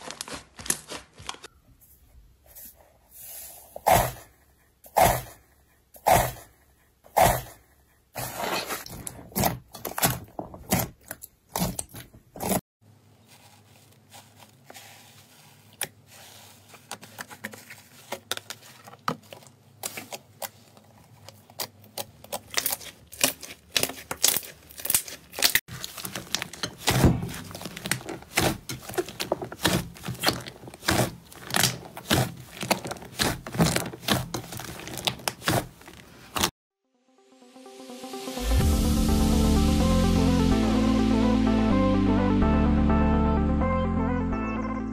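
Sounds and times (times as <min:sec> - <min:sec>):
slime popping and squelching: 0:21.5 - 0:35.8.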